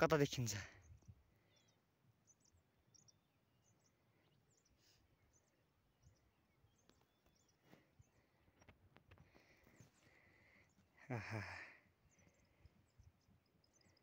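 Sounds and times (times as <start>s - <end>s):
faint high bird chirps: 0.0s - 14.0s.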